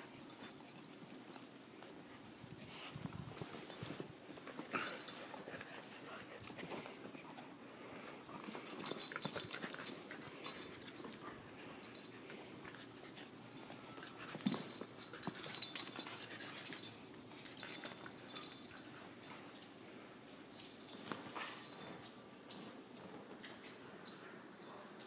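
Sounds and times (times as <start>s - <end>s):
puppies scuffling: 8.2s - 25.0s.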